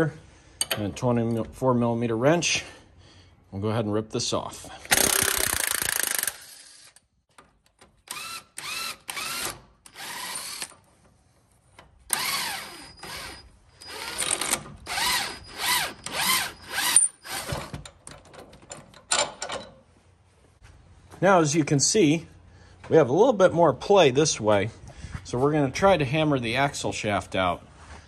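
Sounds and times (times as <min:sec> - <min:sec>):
cordless impact wrench whirring: 0:04.9 - 0:07.0, 0:08.0 - 0:10.8, 0:12.1 - 0:17.9.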